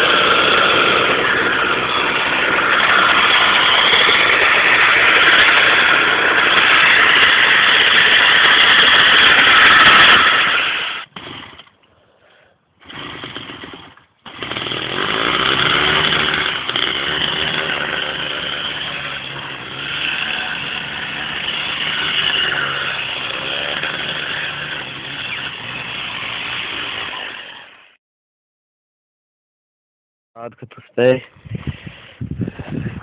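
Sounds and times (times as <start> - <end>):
two-stroke bicycle engine running: 0.0 - 10.5, 12.9 - 27.1.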